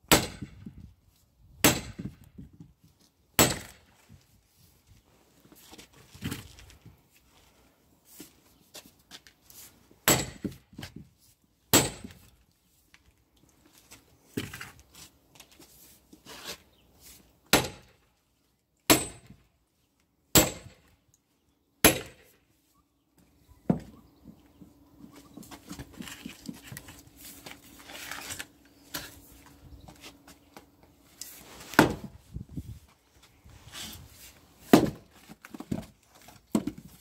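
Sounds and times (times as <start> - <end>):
hammer striking metal maul: 18.9 - 19.3, 21.8 - 22.2.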